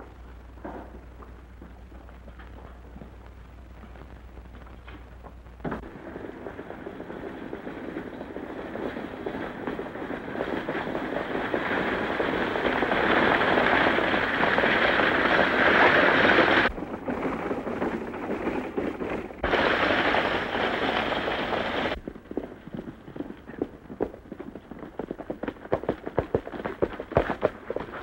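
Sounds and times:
galloping horse hooves clattering: 0:00.2 - 0:28.0
stagecoach wheels rattling: 0:06.3 - 0:22.0.

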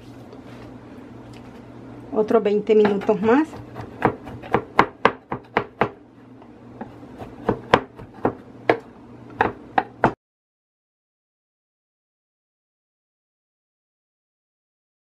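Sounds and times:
knife chopping on wooden board: 0:02.8 - 0:06.0, 0:06.8 - 0:10.2.

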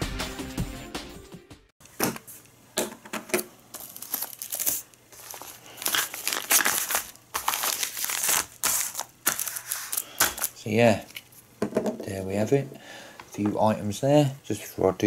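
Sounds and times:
plastic crinkling and rustling: 0:03.7 - 0:11.4.

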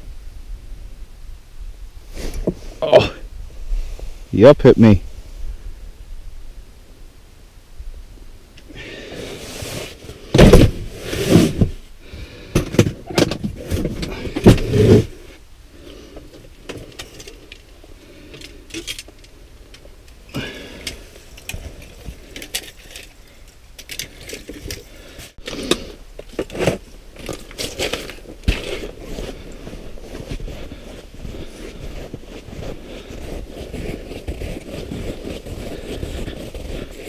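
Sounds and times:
scrapes: 0:08.8 - 0:19.3, 0:20.3 - 0:37.0
fishing gear clattering and knocking: 0:20.3 - 0:29.3.

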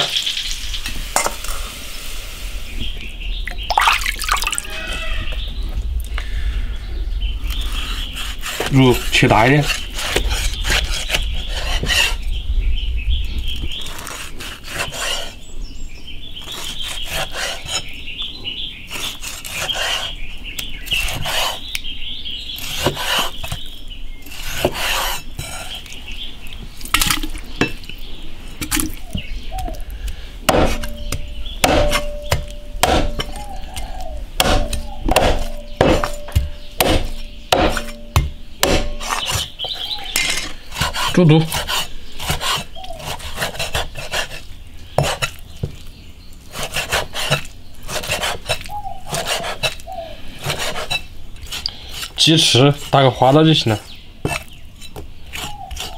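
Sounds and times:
cleaver chopping on wooden board: 0:30.5 - 0:39.8, 0:45.0 - 0:45.8.

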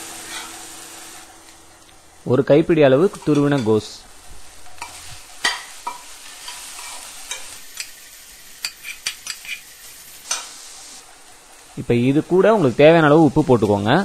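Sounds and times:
vegetables sizzling in oil: 0:00.0 - 0:14.0
spatula scraping and tapping pan: 0:04.8 - 0:08.0, 0:08.6 - 0:09.7.

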